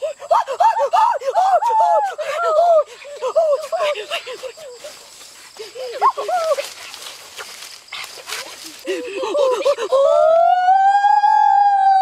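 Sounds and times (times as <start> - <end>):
child squealing and crying out: 8.8 - 12.0.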